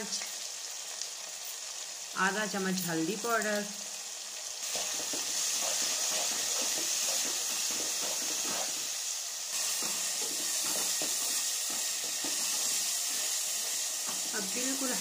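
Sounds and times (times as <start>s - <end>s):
food sizzling in a pan: 0.0s - 15.0s.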